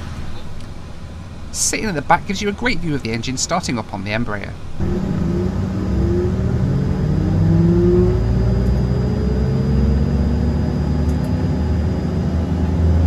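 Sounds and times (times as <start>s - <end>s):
jet engine spooling up: 4.8s - 13.0s.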